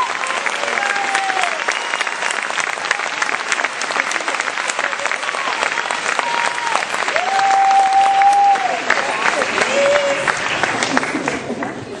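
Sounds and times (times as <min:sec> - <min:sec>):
audience applauding: 0:00.0 - 0:12.0.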